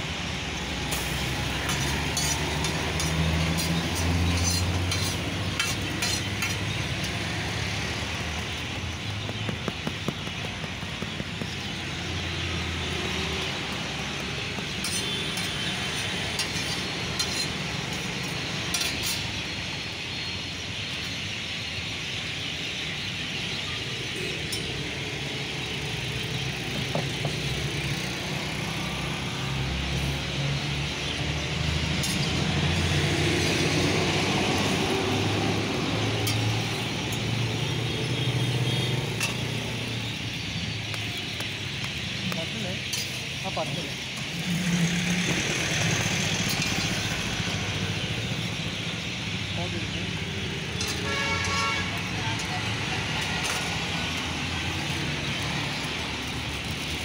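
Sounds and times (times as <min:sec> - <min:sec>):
low street traffic rumble: 0:00.0 - 0:57.0
egg and oil sizzling on griddle: 0:00.5 - 0:19.4, 0:31.9 - 0:40.2, 0:42.8 - 0:43.3, 0:50.2 - 0:57.0.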